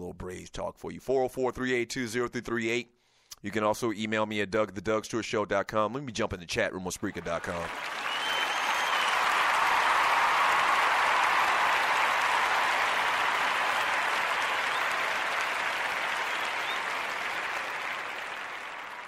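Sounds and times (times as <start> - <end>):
crowd applause: 7.2 - 19.0.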